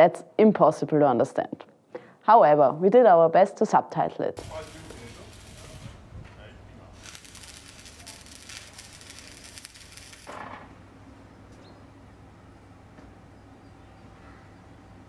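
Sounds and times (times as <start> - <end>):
welding arc crackling: 4.4 - 10.8
low steady hum: 4.4 - 15.0.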